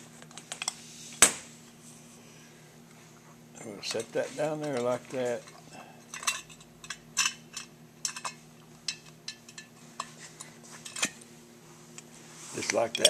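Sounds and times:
faint steady hum: 0.0 - 13.0
metal parts clicking and clinking: 3.9 - 10.1, 10.8 - 11.2.

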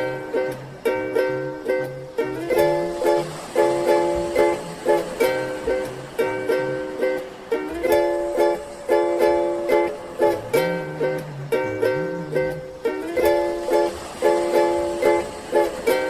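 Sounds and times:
rhythmic plucked chords: 0.0 - 16.0.

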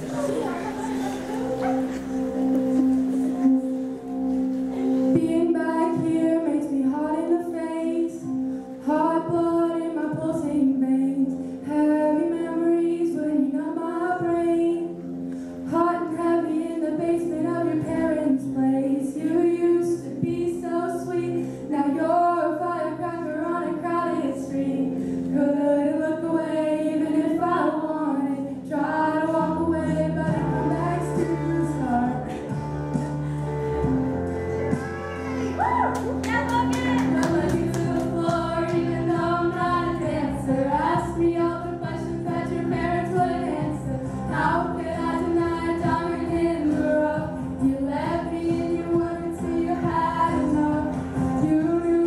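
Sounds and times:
instrumental accompaniment: 0.0 - 12.0, 28.9 - 52.0
girls singing together: 15.7 - 33.2, 36.3 - 52.0.

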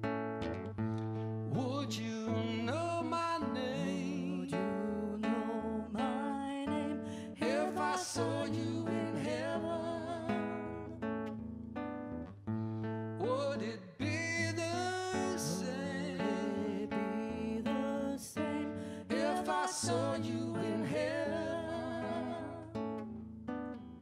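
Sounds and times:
acoustic guitar: 0.0 - 24.0
person singing: 1.6 - 10.9, 13.2 - 22.8.

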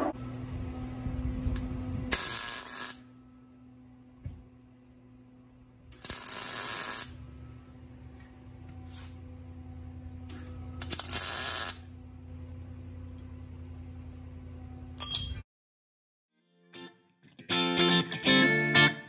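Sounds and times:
steady hum: 0.0 - 15.0
welder crackling hiss: 2.2 - 3.0, 6.0 - 7.2, 10.3 - 11.9.

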